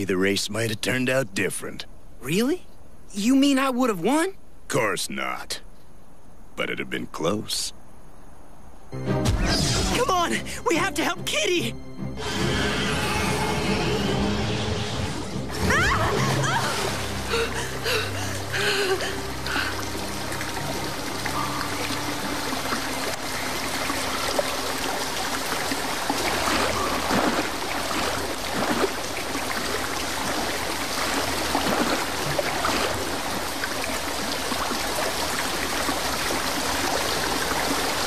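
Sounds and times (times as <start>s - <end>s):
running and trickling water: 15.6s - 38.0s.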